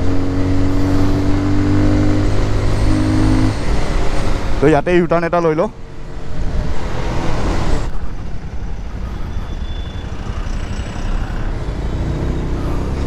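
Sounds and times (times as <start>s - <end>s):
wind rush on microphone: 6.2s - 9.6s.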